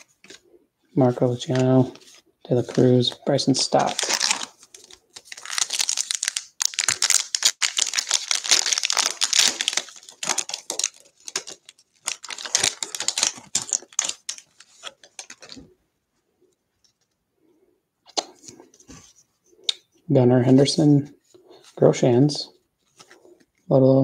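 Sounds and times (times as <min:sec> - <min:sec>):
foil wrapper crinkling and tearing: 0:03.7 - 0:15.6.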